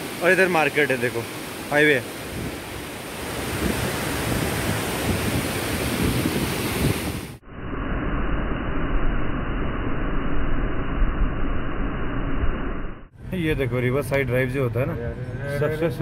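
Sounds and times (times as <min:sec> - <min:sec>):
rushing water: 0:00.0 - 0:07.4
wind: 0:00.0 - 0:12.5, 0:13.1 - 0:16.0
wind rumble on microphone: 0:02.2 - 0:12.6.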